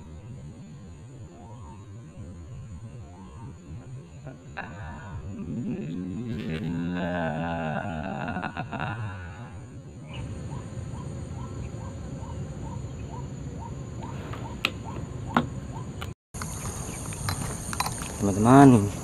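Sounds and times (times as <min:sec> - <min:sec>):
short rising bird calls: 0:10.0 - 0:16.0.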